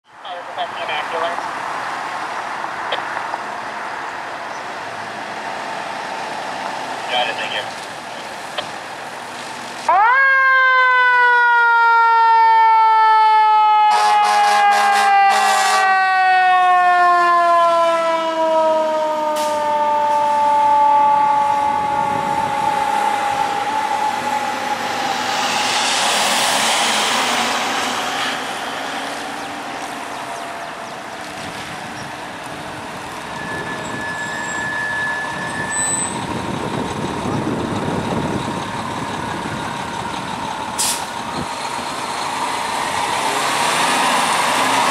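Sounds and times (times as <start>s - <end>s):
fire engine running: 0.0s - 44.9s
mechanical siren winding down: 9.9s - 26.9s, 33.0s - 36.4s.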